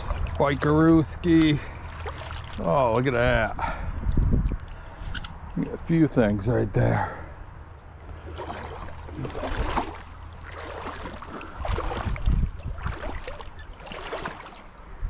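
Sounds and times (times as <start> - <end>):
boots wading through water: 0.0 - 4.8, 7.8 - 15.0.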